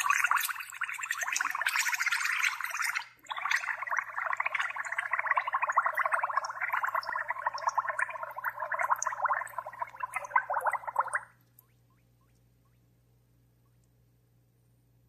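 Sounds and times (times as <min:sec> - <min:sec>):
gas bubbling under water: 0:00.0 - 0:11.3.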